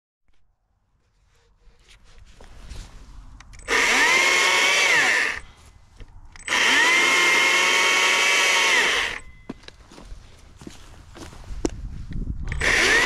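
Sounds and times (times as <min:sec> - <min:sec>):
battery chainsaw whining: 0:03.6 - 0:05.5, 0:06.4 - 0:09.3, 0:12.5 - 0:13.0.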